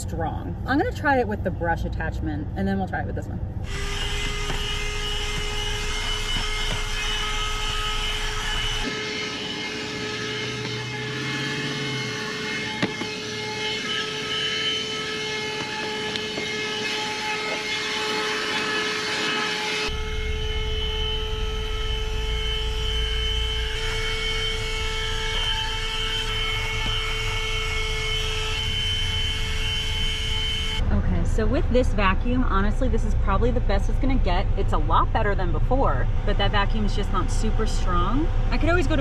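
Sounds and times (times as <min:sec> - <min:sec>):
handheld vacuum whining: 0:03.6 - 0:30.8.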